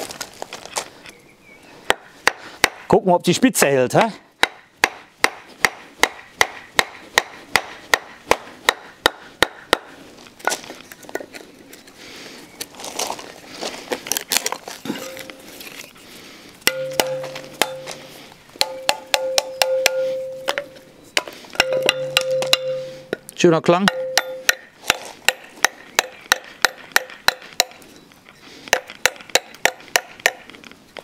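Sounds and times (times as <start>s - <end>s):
steel knife ringing: 16.7s - 20.9s, 21.6s - 23.2s, 23.9s - 24.6s.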